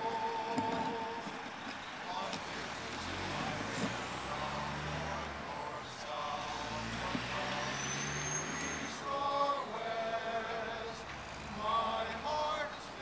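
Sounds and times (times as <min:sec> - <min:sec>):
male chorus singing: 0:00.0 - 0:13.0
truck hissing whistle: 0:07.5 - 0:09.1.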